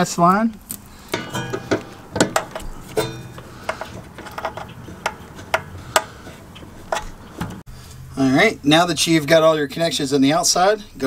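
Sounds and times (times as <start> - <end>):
sharp metallic clicks and taps: 1.2 - 7.6.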